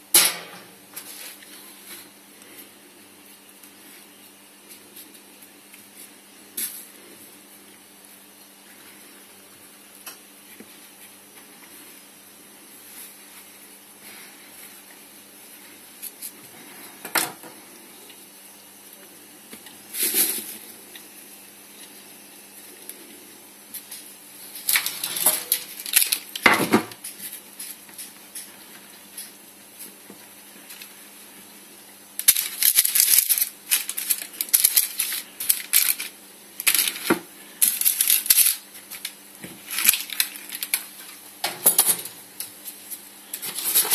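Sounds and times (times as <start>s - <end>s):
faint steady hum: 0.0s - 43.9s
clattering on metal baking tray: 0.2s - 0.8s, 41.4s - 42.2s.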